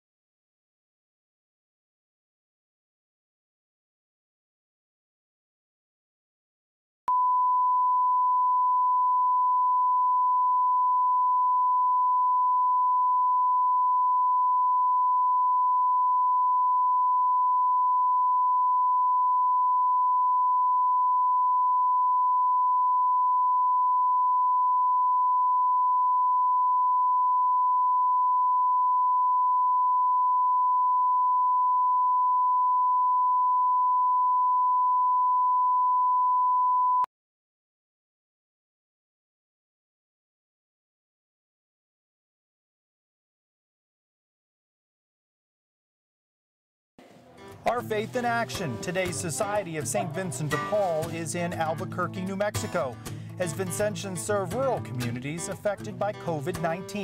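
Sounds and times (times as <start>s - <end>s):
steady sine tone: 7.1s - 37.1s.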